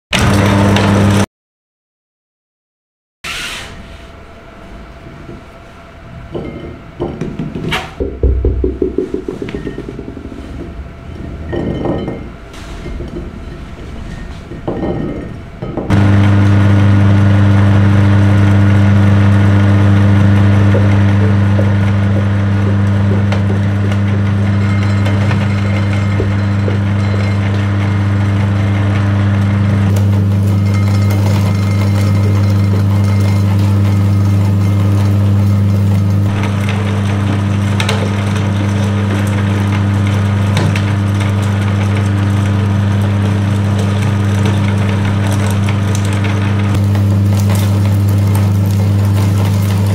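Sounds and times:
meat grinder motor humming: 0.2 - 1.2, 15.9 - 49.9.

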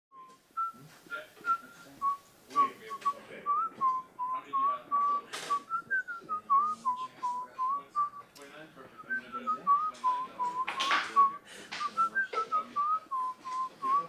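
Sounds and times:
man whistling a tune: 0.2 - 8.3, 9.0 - 14.0.

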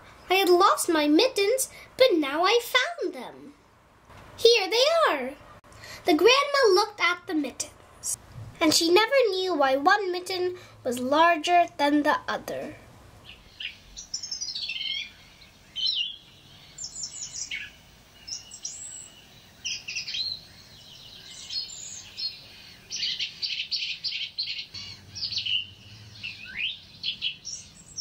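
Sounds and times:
songbirds singing: 10.2 - 28.0.

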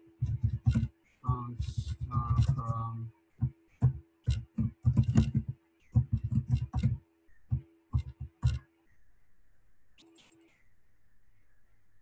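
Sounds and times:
computer keyboard typing: 0.2 - 0.9, 1.6 - 2.9, 3.8 - 8.6.

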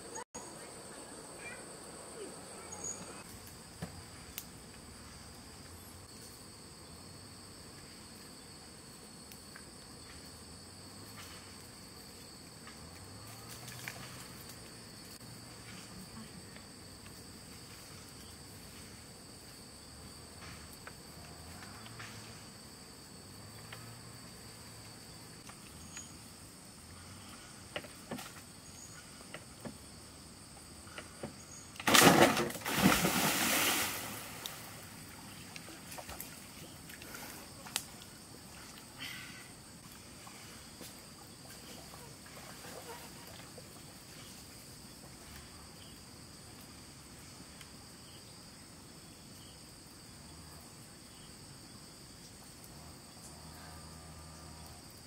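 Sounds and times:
insects chirping: 0.0 - 55.0
person splashing into water: 31.8 - 34.8
water sloshing: 31.8 - 35.1.

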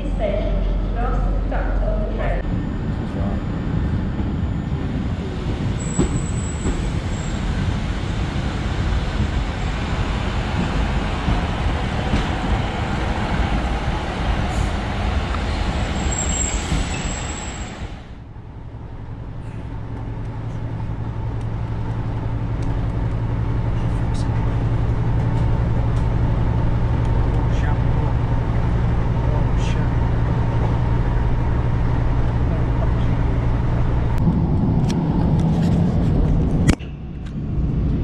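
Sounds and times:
train carriage hum: 0.0 - 38.0
train rushing past: 0.0 - 38.0
high train squeal: 2.5 - 11.1, 12.1 - 18.2.

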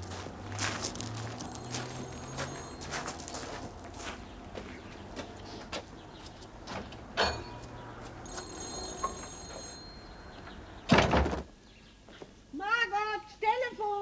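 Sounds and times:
light footsteps: 0.0 - 8.6
door clunk: 10.9 - 11.5.

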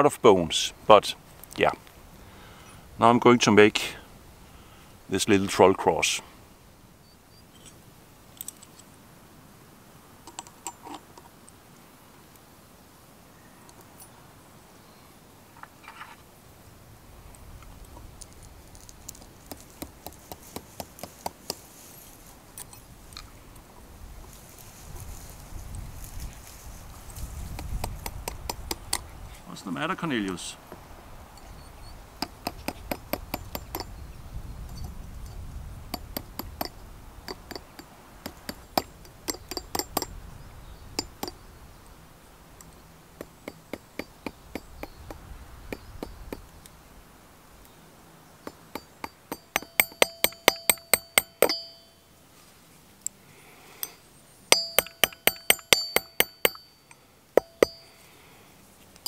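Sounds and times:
hammer striking wire on anvil: 32.2 - 33.9, 34.7 - 40.1, 43.2 - 46.4, 48.4 - 51.9, 53.8 - 57.9
anvil ringing: 48.5 - 52.0, 53.8 - 57.9.

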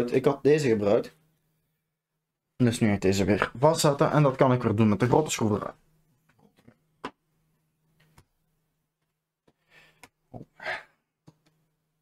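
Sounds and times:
person breathing out: 9.6 - 11.1.

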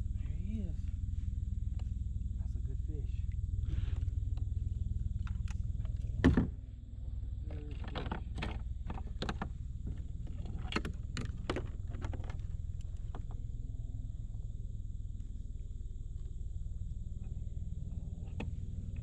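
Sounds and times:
steady low rumble: 0.0 - 19.0
loud thump: 6.2 - 6.6
handling clicks and knocks: 7.6 - 13.4.

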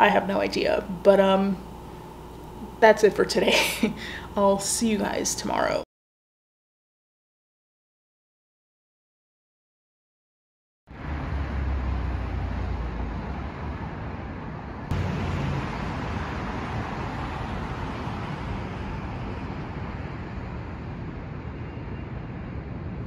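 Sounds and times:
city noise: 10.9 - 23.0
passing vehicles rumbling: 10.9 - 23.0.

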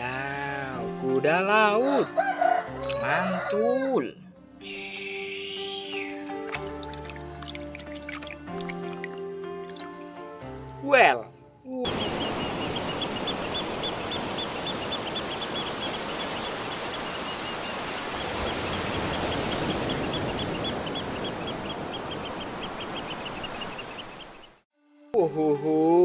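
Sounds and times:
steady rushing noise: 11.9 - 23.9.

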